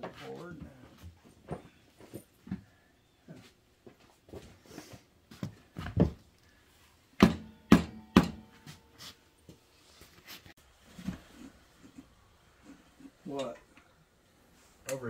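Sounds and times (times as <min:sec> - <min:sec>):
hammer striking metal: 0:07.2 - 0:08.9.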